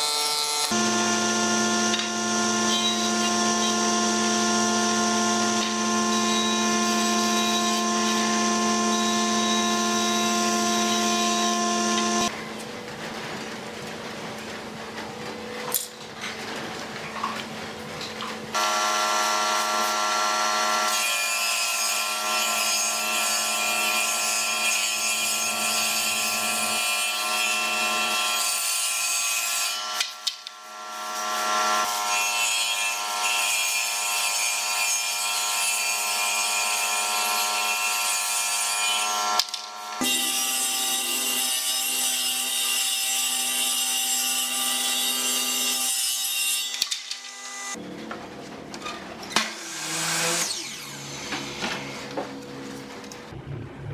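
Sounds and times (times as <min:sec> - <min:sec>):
woodworking machine humming: 0:00.0 - 0:12.4, 0:18.5 - 0:21.1, 0:47.0 - 0:53.4.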